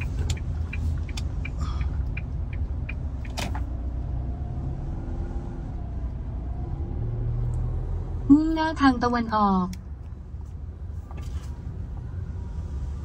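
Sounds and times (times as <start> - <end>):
vehicle cabin road rumble: 0.0 - 13.0.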